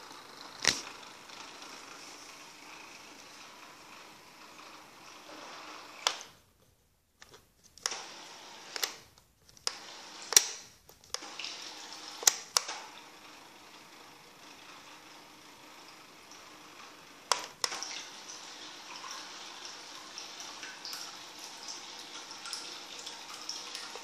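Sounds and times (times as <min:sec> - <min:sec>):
faint steady motor hum: 0:00.0 - 0:06.6, 0:07.8 - 0:24.0.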